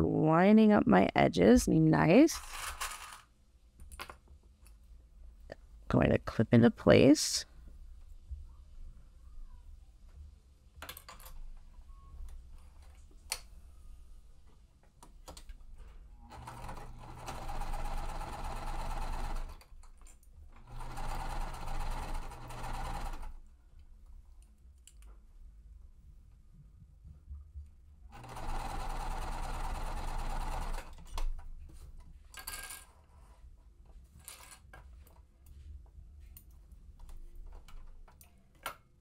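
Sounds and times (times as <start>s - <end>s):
sewing machine stitching: 16.3s - 19.7s, 20.6s - 23.4s, 28.1s - 31.0s.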